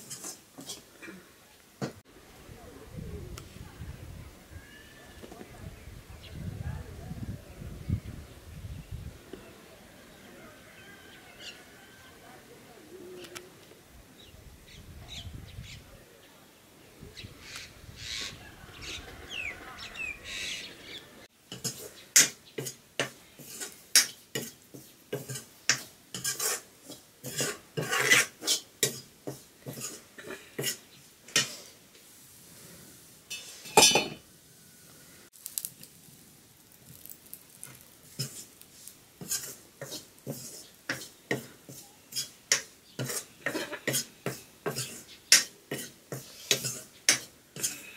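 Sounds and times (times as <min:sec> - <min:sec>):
wooden ladle scraping a pan: 0:00.0 - 0:00.9, 0:21.5 - 0:34.2, 0:37.0 - 0:47.9.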